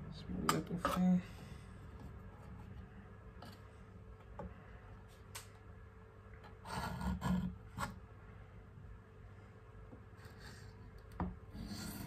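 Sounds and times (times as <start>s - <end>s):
knife scraping cutting board: 6.6s - 8.0s, 11.5s - 12.0s.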